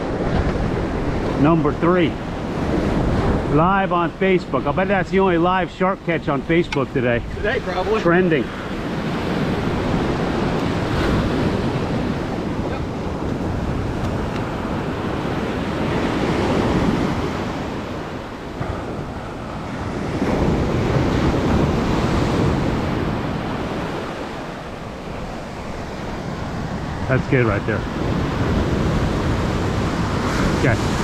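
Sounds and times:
surf breaking on beach: 0.0 - 31.0
wind buffeting microphone: 0.0 - 31.0.

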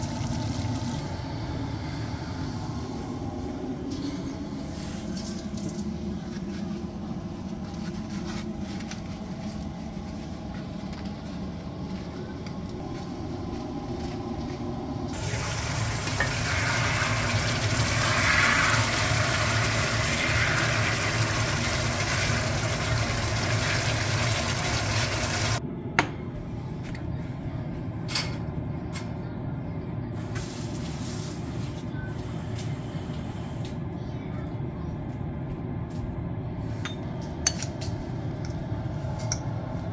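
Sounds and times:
low hum: 0.0 - 21.1
meat sizzling in a pan: 15.2 - 25.6.

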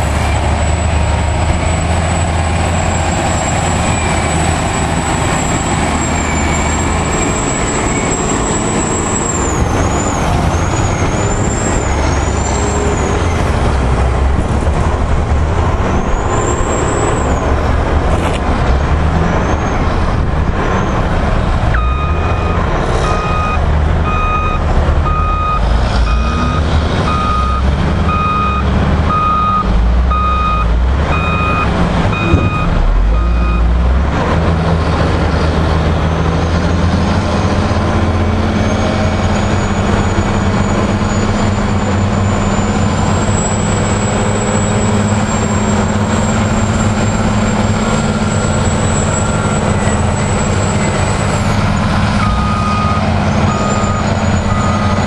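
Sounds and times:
heavy diesel machinery running: 0.0 - 55.0
engine revving: 17.0 - 41.4
reversing alarm beeping: 21.8 - 33.7, 52.2 - 55.0.

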